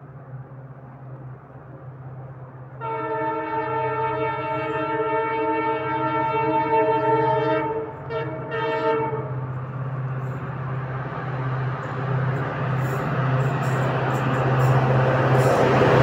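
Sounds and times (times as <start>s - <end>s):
oncoming train rushing: 0.0s - 16.0s
locomotive horn blast: 2.8s - 9.5s.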